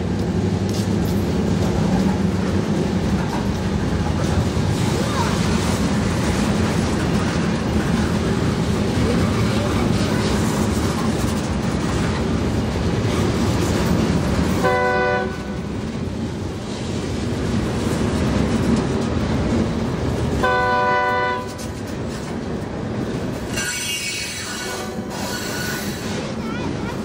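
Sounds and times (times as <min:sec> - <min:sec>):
freight train rumbling past: 0:00.0 - 0:27.0
train air horn blasts: 0:14.6 - 0:15.6, 0:20.4 - 0:21.6, 0:23.7 - 0:25.2.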